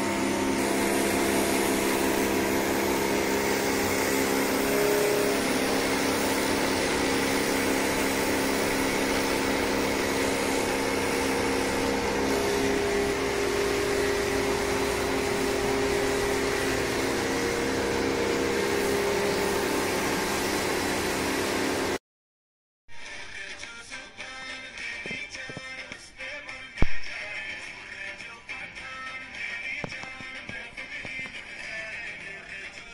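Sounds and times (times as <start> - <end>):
pressure washer motor hum: 0.0 - 22.0
water jet hissing on concrete: 0.0 - 22.0.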